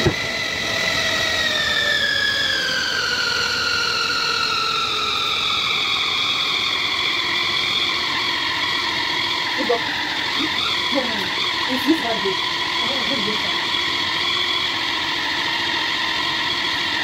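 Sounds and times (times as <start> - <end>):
food processor motor whining: 0.0 - 17.0.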